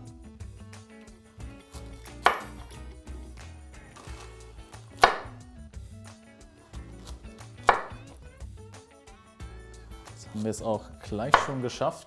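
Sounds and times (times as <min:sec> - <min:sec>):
background music: 0:00.0 - 0:12.0
knife chopping on cutting board: 0:01.6 - 0:02.8, 0:04.0 - 0:05.4, 0:06.8 - 0:08.2, 0:11.2 - 0:11.6.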